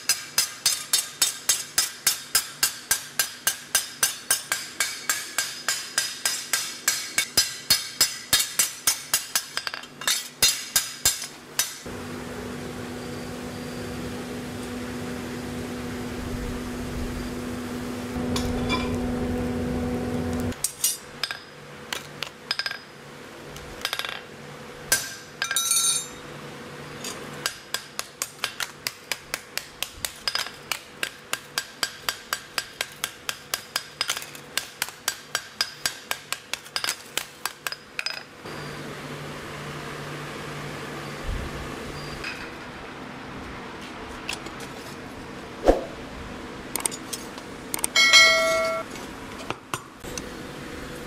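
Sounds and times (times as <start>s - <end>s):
hammer striking steel on anvil: 0.0s - 11.9s, 18.2s - 19.0s, 24.9s - 26.2s, 27.4s - 38.2s, 47.9s - 48.9s
steady machine hum: 11.9s - 20.6s.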